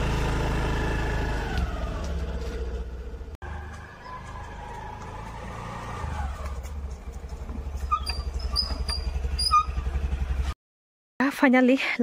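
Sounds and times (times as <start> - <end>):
motor scooter engine running: 0.0 - 10.6.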